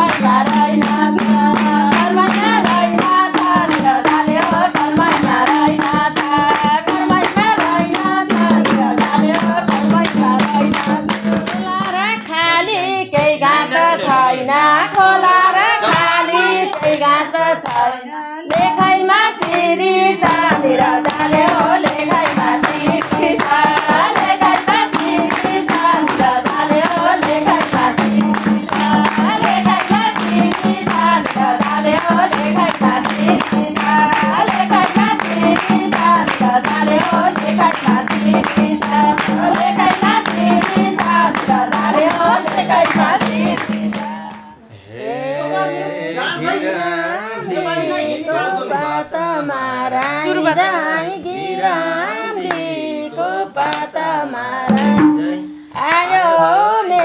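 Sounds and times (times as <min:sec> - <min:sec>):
hand drum: 0:00.0 - 0:12.6, 0:18.5 - 0:44.6, 0:54.5 - 0:56.1
hand-clapping: 0:00.0 - 0:44.6, 0:52.0 - 0:52.8, 0:53.6 - 0:55.1
women singing folk song: 0:00.0 - 0:57.0.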